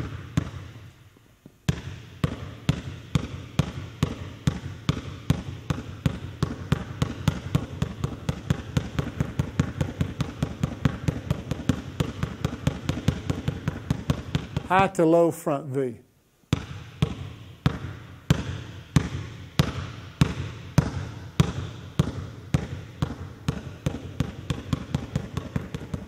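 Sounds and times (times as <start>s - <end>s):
basketball bouncing on hardwood: 0.0s - 14.7s, 16.5s - 26.0s.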